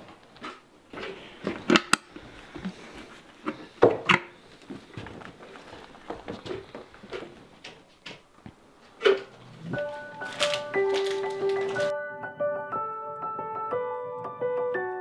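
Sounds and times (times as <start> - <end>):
shuffling: 0.1 - 3.8, 4.4 - 11.9.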